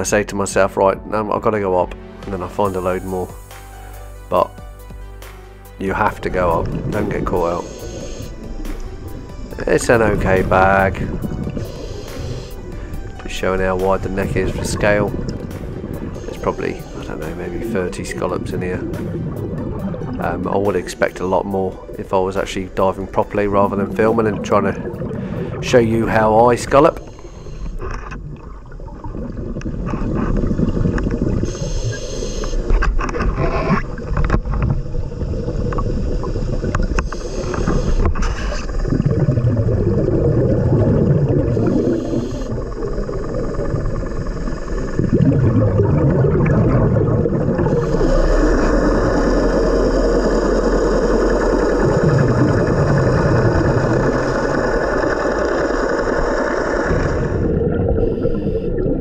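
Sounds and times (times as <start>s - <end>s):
underwater boat engine drone: 6.0s - 32.7s, 34.0s - 59.0s
bubbling exhalations: 6.2s - 32.8s, 33.4s - 59.0s
scuba regulator hissing inhalations: 6.7s - 18.0s, 26.9s - 28.0s, 30.4s - 32.8s, 35.0s - 38.9s, 41.0s - 45.4s, 47.6s - 58.8s.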